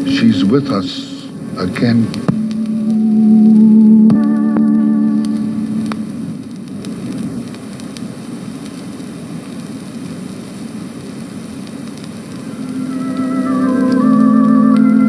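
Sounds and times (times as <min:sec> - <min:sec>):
held music notes: 0:00.0 - 0:06.6, 0:12.5 - 0:15.0
record surface hiss: 0:00.0 - 0:15.0
faint clicks: 0:02.1 - 0:09.7, 0:11.6 - 0:14.9.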